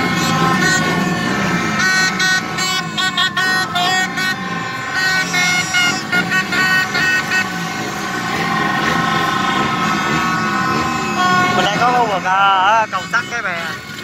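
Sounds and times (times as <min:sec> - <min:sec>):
motorbike engines running: 0:00.0 - 0:14.0
vehicle and plastic horns tooting: 0:00.0 - 0:14.0.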